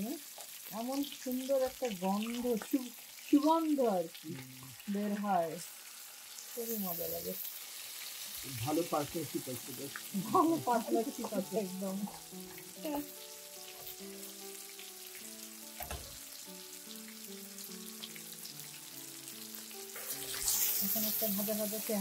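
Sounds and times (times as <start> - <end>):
fish frying in oil sizzling: 0.0 - 22.0
soft background music: 0.0 - 22.0
person speaking: 2.2 - 5.4, 8.4 - 12.1.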